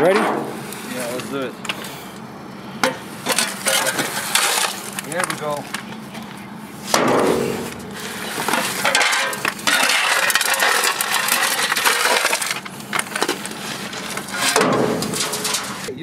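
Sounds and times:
broom sweeping grit on asphalt: 0.4s - 2.0s, 7.4s - 15.9s
chips clinking against metal: 8.4s - 16.0s.

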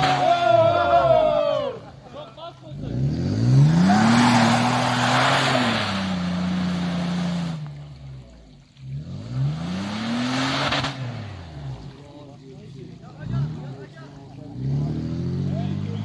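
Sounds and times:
car engine revving: 2.6s - 8.2s, 8.8s - 16.0s
tyres spinning in snow: 3.4s - 7.5s.

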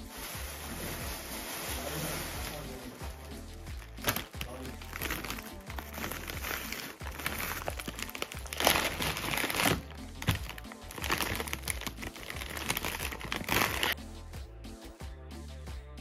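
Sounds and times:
plastic packaging crinkling: 0.0s - 14.0s
background music: 0.0s - 16.0s.

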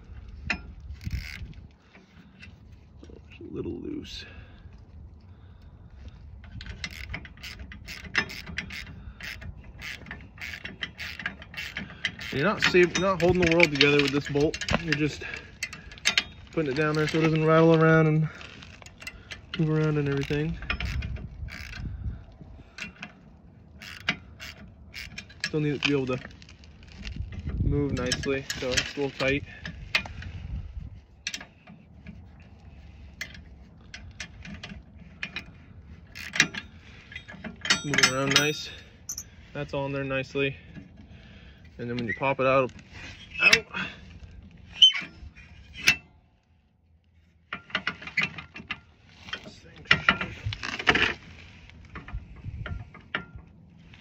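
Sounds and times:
low steady rumble: 0.0s - 54.0s
sharp metal ratchet clicks: 6.7s - 16.4s, 23.8s - 25.6s, 36.1s - 39.3s.

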